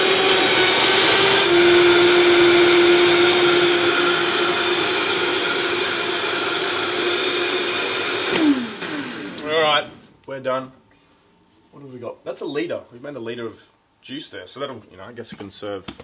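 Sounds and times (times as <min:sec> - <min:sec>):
blender motor blending ice: 0:00.0 - 0:09.9.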